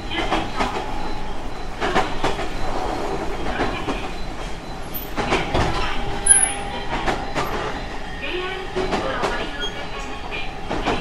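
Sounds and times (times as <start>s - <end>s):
steady train rumble: 0.0s - 11.0s.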